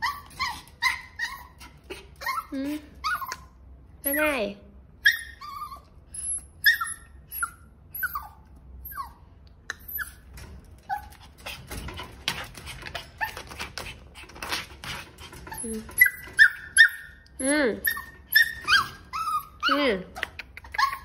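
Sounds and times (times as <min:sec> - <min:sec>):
puppy scratching wire pen: 0:00.0 - 0:03.5, 0:09.8 - 0:21.0
puppy whimpering: 0:00.0 - 0:04.4, 0:05.0 - 0:11.3, 0:15.3 - 0:21.0.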